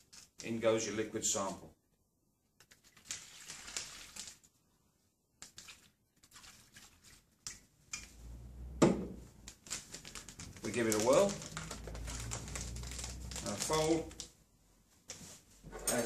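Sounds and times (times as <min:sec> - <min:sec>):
liquid pouring and splashing: 0:02.6 - 0:04.6, 0:05.4 - 0:08.2, 0:09.3 - 0:14.3
glass flask knocking on table: 0:08.8 - 0:09.2
plastic bag crinkling: 0:09.3 - 0:14.4.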